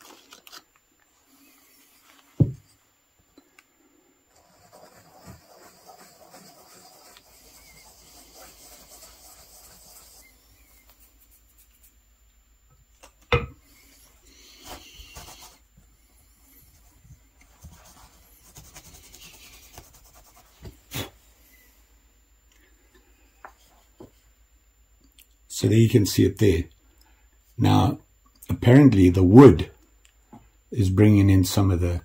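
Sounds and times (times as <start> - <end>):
scratchy rubbing on wood: 4.3 - 12.0, 14.4 - 15.6, 17.5 - 20.6.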